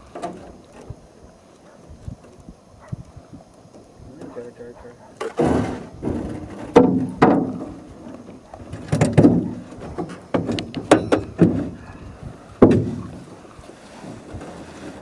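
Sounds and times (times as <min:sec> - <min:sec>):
paddle knocking on boat hull: 0:05.2 - 0:11.8, 0:12.5 - 0:13.3.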